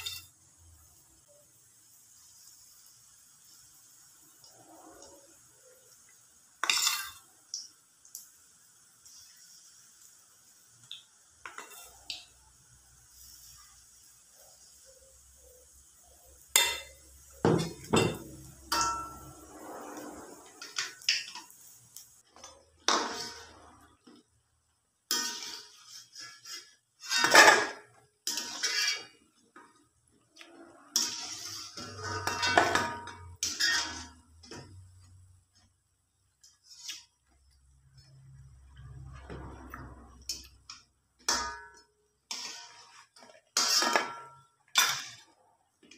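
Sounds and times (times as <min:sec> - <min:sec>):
frying oil hissing: 0:00.0 - 0:45.9
metal spoon clanking on wok: 0:06.6 - 0:07.2, 0:16.4 - 0:19.4, 0:31.0 - 0:34.8, 0:40.1 - 0:42.8, 0:43.6 - 0:45.2.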